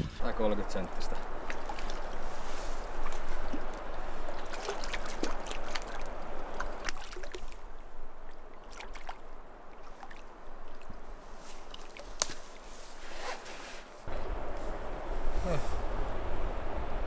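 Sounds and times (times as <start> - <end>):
fish splashing at surface: 1.4 - 7.6.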